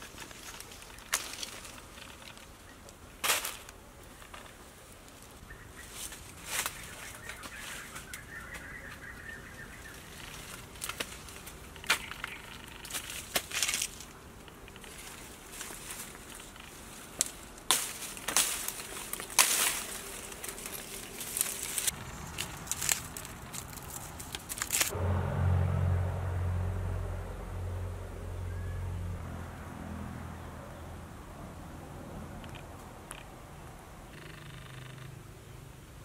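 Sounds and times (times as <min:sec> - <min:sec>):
dry leaves rustling and crackling: 0:00.0 - 0:25.0.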